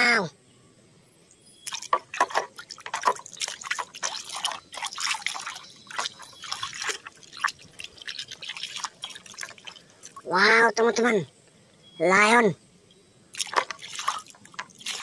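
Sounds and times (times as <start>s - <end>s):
water dripping: 1.6s - 10.4s, 13.3s - 15.0s
hand splashing in soapy water: 1.7s - 10.2s, 13.4s - 15.0s.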